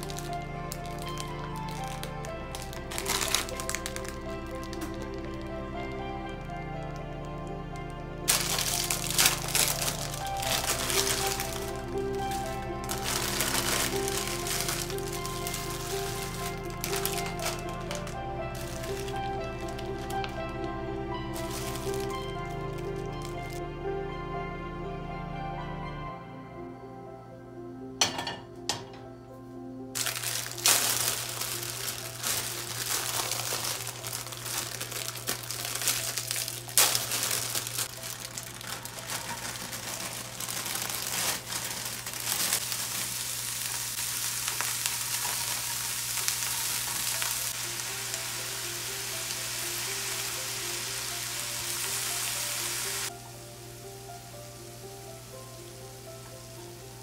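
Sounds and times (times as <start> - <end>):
vegetables sizzling in hot oil: 8.3 - 20.3, 21.3 - 23.5, 30.0 - 57.0.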